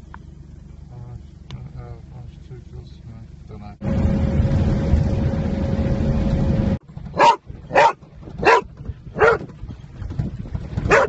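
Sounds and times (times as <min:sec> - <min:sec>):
vehicle rumbling on dirt road: 0:00.0 - 0:11.0
dog barking: 0:07.2 - 0:09.4.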